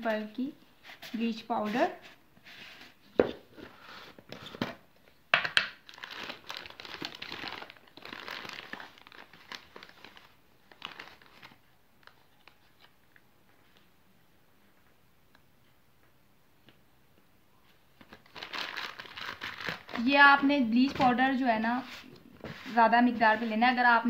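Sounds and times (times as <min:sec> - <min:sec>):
wrapper crinkling and tearing: 0:05.8 - 0:12.9, 0:18.0 - 0:20.2.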